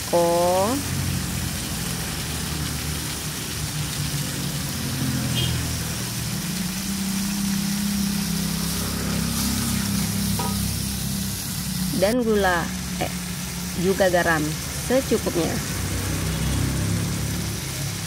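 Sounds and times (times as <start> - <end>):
low engine hum: 0.0 - 18.0
sauce sizzling in a wok: 0.0 - 18.0.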